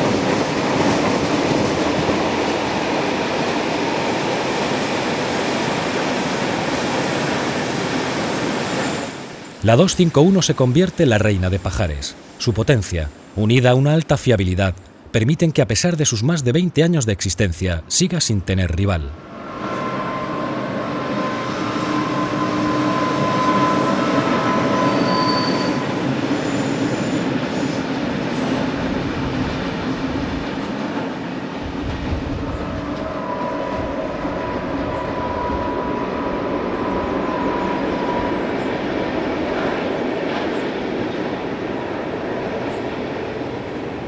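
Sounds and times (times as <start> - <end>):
rumble of train wheels: 0.0 - 13.4, 19.1 - 44.0
high whining tone: 19.2 - 27.0, 32.9 - 38.7.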